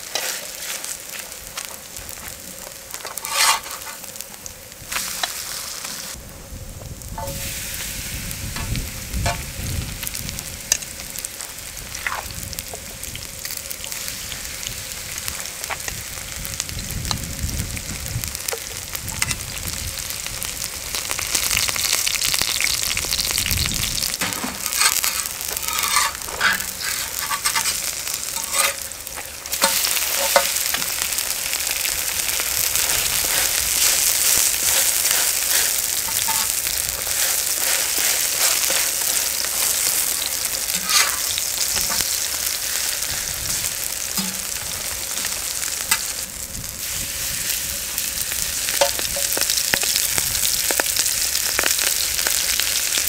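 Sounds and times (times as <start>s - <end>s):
batter sizzling in hot oil: 0.0s - 53.0s
utensil clicks and scrapes: 3.0s - 4.0s, 24.6s - 30.9s, 40.6s - 42.1s.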